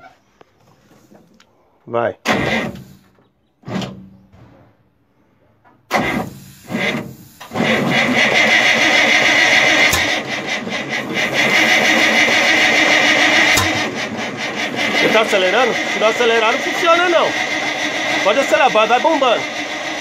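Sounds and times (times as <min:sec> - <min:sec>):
starter motor cranking engine: 0:02.2 - 0:04.0, 0:05.9 - 0:20.0.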